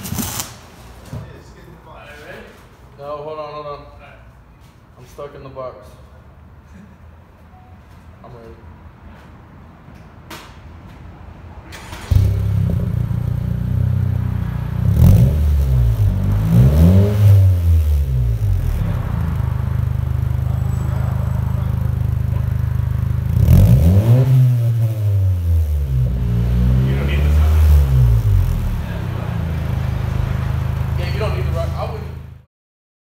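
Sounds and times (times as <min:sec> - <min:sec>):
car exhaust idling and revving: 0:12.1 - 0:32.4.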